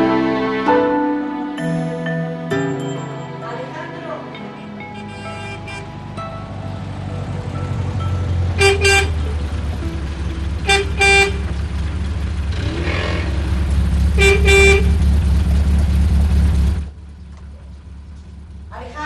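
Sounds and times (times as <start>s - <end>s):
car horn double toots: 4.8s - 5.9s, 8.5s - 9.3s, 10.6s - 11.6s, 14.1s - 15.0s
car engine running: 4.9s - 19.0s.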